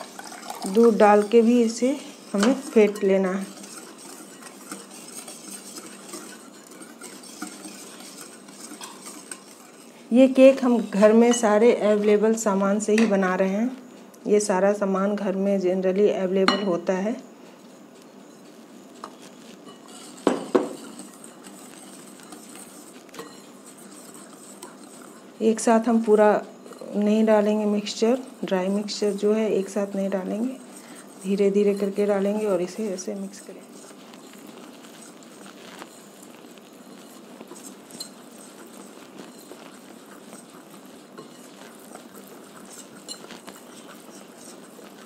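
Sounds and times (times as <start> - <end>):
whisk stirring batter: 0.0 - 12.4, 18.4 - 45.0.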